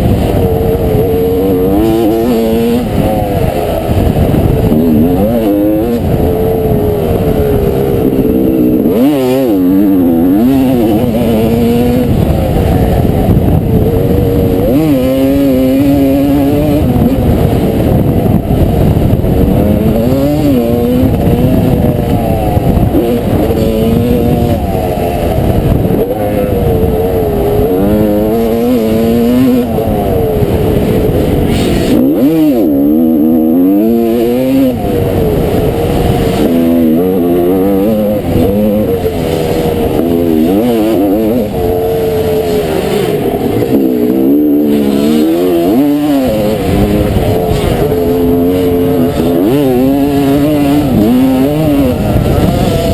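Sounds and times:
two-stroke motorcycle engine revving: 0.0s - 52.9s.

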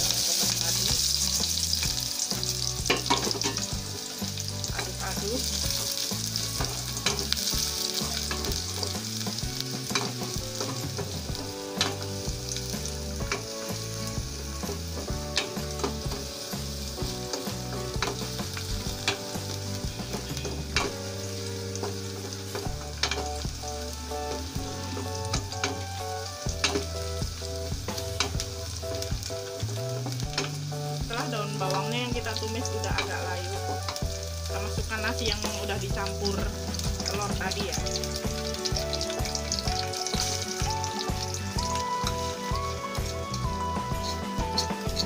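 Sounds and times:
onions sizzling in hot oil: 0.0s - 45.0s
wooden spatula scraping a pan: 41.2s - 45.0s.

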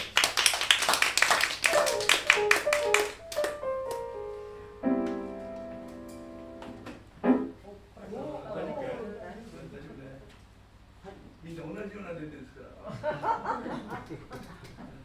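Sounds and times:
audience clapping: 0.0s - 4.1s
grand piano notes: 1.7s - 8.0s.

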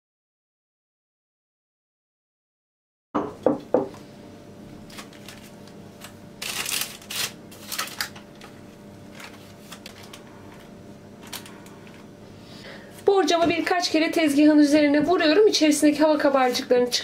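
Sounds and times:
parchment paper rustling: 4.9s - 12.1s, 16.0s - 16.8s.

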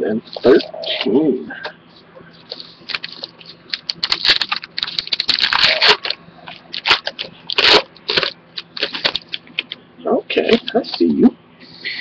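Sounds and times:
foil wrapper tearing and crinkling: 2.8s - 9.7s.

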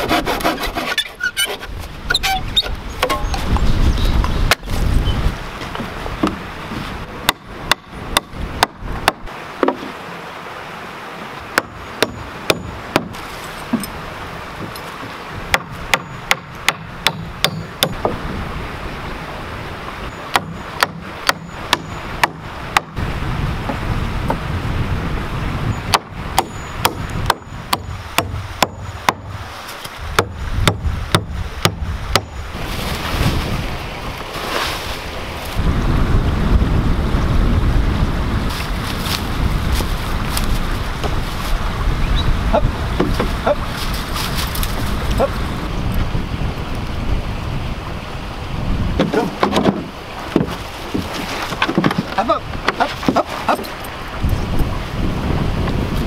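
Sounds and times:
wind rumble on microphone: 0.0s - 9.4s, 11.3s - 56.0s
hammer striking wooden board: 11.6s - 13.9s, 15.5s - 18.2s, 20.3s - 23.0s, 25.9s - 29.4s, 30.1s - 32.4s.

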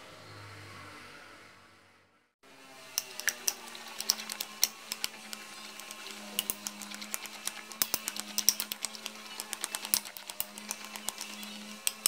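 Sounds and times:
metal utensil stirring in a bowl: 3.0s - 12.0s.

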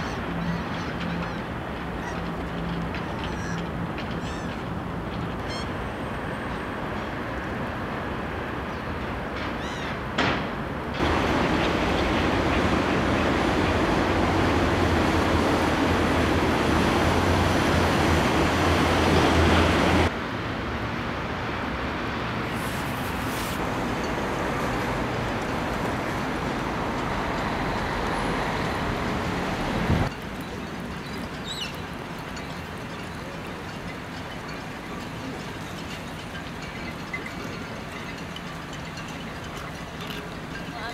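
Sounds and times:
distant traffic rumble: 0.0s - 40.9s
faint high bird calls: 3.0s - 4.7s.

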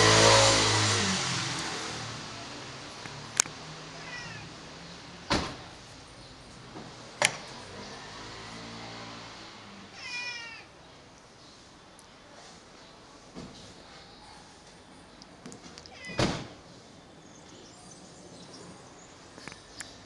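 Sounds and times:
cat meowing: 4.0s - 4.5s, 9.9s - 10.7s, 15.8s - 16.3s.

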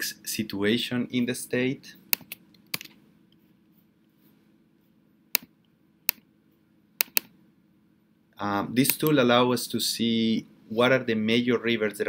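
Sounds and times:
faint room hum: 0.0s - 12.0s
computer mouse clicks: 2.1s - 3.4s, 7.0s - 7.4s.

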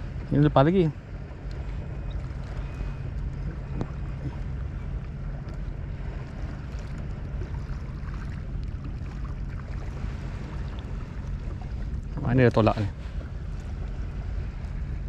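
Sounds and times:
water lapping against kayak hull: 0.0s - 15.0s
wind rumble on microphone: 0.0s - 15.0s.

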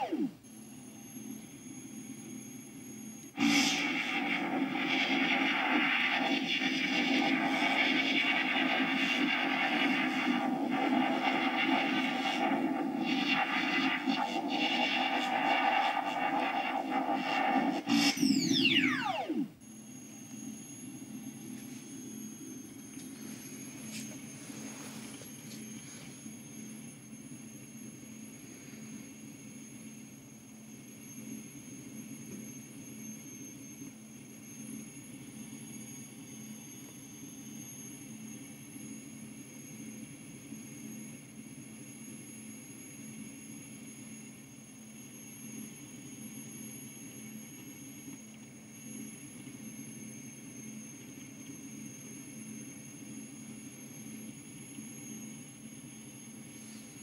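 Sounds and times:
low electronic hum: 0.0s - 1.4s, 2.7s - 26.6s
electronic drone with whine: 0.0s - 57.0s.

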